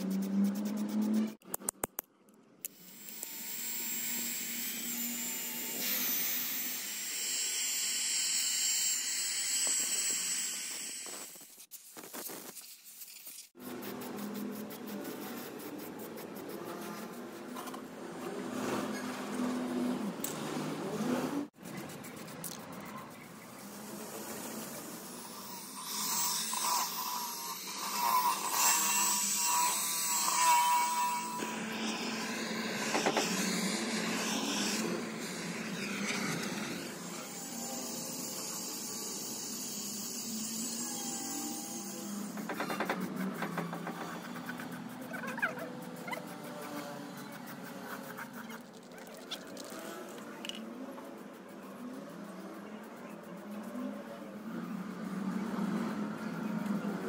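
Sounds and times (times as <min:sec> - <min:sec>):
die grinder grinding metal: 0:02.7 - 0:11.4, 0:24.7 - 0:44.2
drill with wire brush scouring metal: 0:02.8 - 0:12.5, 0:23.8 - 0:46.9.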